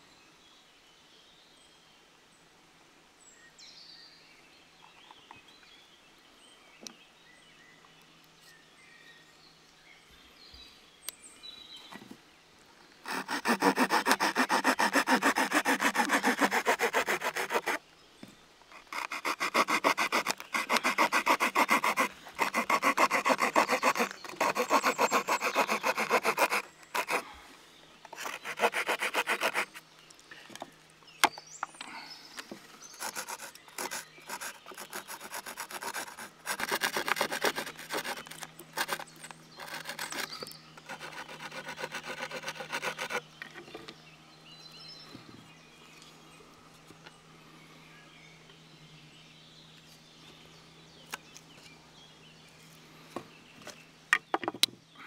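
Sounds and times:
small saw cutting wood: 13.0 - 17.8, 18.7 - 27.3, 28.1 - 29.9, 32.8 - 43.7.

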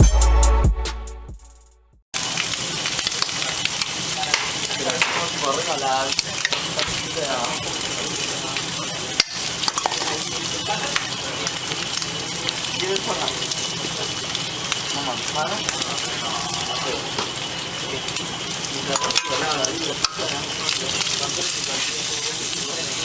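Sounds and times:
music: 0.0 - 2.0
food sizzling on a griddle: 2.2 - 23.0.

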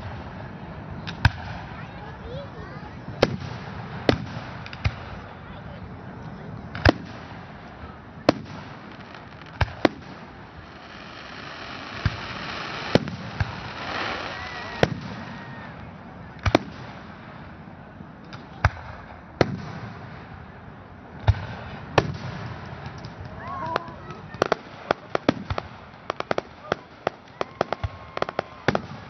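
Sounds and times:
crowd noise: 0.0 - 29.0
firework shells booming: 3.2 - 5.2, 6.7 - 15.8, 16.4 - 17.4, 21.2 - 29.0.

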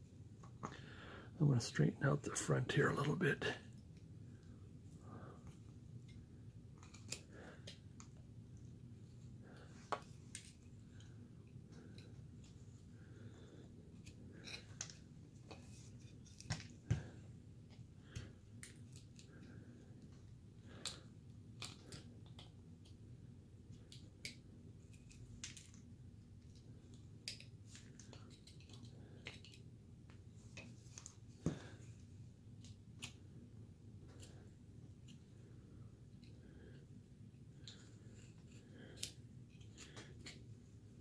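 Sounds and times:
knife carving wood clicks: 20.8 - 23.0, 23.7 - 25.8, 38.9 - 40.4.

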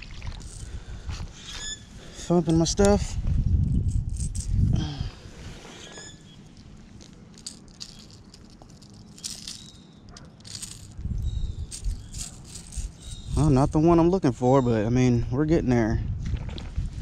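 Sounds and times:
plastic lure and hooks rattling: 0.4 - 0.8, 3.7 - 4.6, 6.6 - 13.6.

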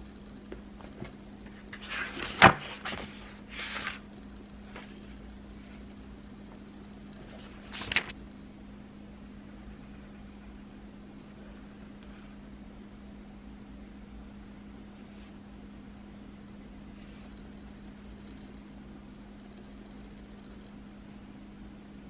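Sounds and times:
steady low hum: 0.0 - 22.0
book pages turning: 1.0 - 4.0, 7.3 - 8.2
sharp paper snap: 7.7 - 8.2.

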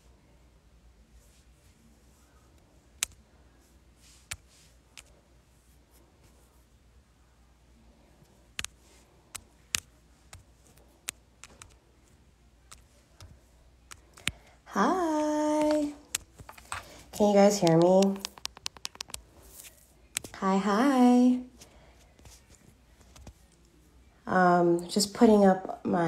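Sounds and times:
faint low hum: 0.0 - 26.0
short sharp taps and clicks: 17.6 - 19.2.

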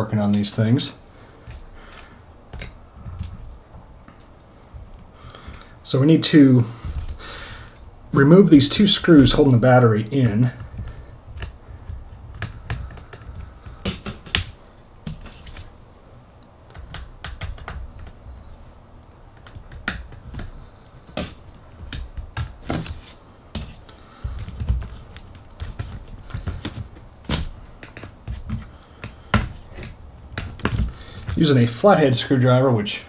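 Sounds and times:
handling thumps: 0.0 - 5.8, 6.7 - 15.8, 16.4 - 31.6.

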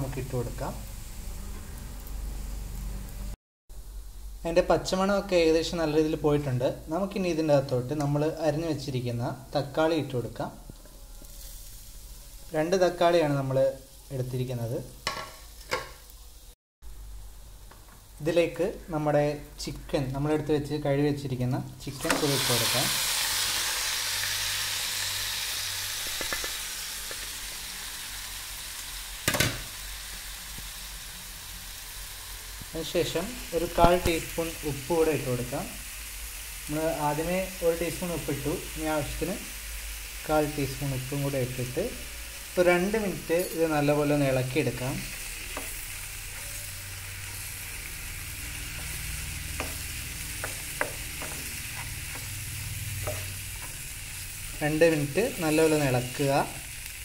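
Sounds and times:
food sizzling in frying pan: 0.0 - 20.7, 21.5 - 57.0
spatula knocking and scraping pan: 48.7 - 53.9.

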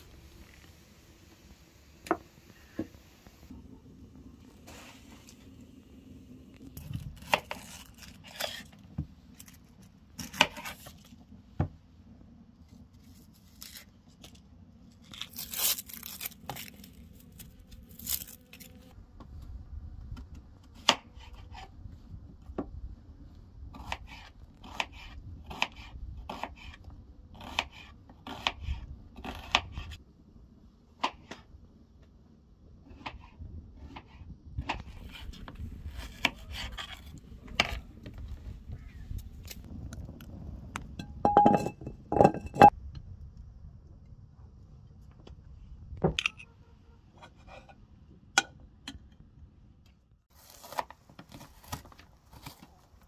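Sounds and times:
onion skin crackling and tearing: 6.7 - 11.0, 13.0 - 18.9, 50.4 - 53.0.

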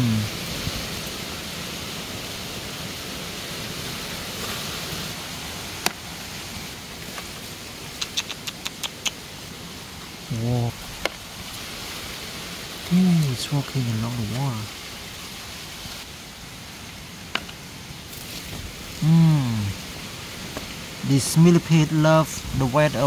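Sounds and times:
man's short vocal sound: 0.0 - 0.3, 19.0 - 19.8
outdoor background hiss: 0.0 - 23.0
sharp clicks: 8.0 - 9.2.

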